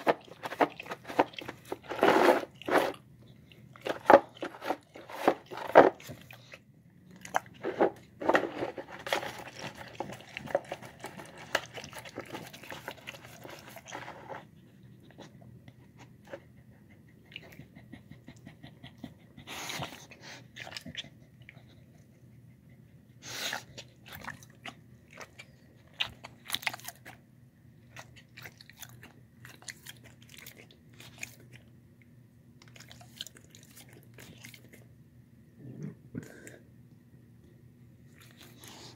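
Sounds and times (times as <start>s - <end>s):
dog chewing wetly: 0.0s - 22.2s, 23.4s - 31.7s
low steady hum: 0.0s - 38.9s.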